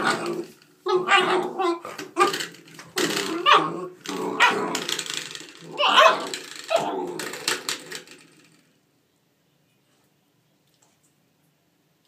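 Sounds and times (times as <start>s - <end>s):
puppy barking and yipping: 0.0s - 2.5s, 3.3s - 3.8s, 4.4s - 4.8s, 5.8s - 6.9s
knocking and clicking: 1.9s - 8.6s.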